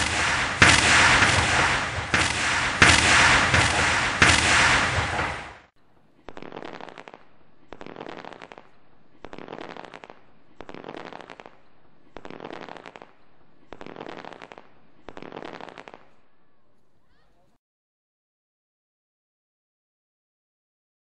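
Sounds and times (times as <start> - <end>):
fireworks popping and crackling: 0.0 - 16.2.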